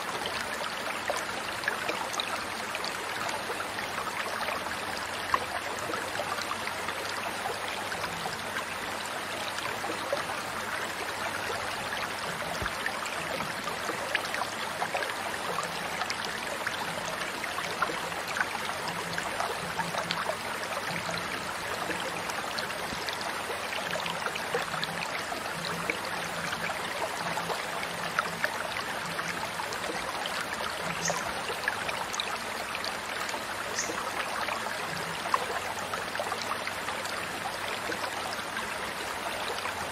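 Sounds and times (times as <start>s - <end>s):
stream trickling and splashing: 0.0s - 39.9s.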